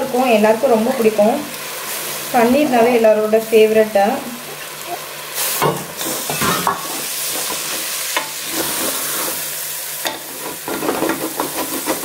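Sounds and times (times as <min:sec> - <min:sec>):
masala sizzling: 0:00.0 - 0:12.0
spatula scraping pan: 0:05.6 - 0:12.0.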